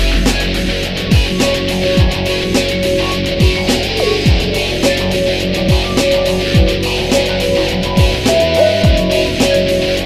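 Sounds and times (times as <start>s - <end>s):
deep beat: 0.0s - 10.0s
music with sustained tones: 0.0s - 10.0s.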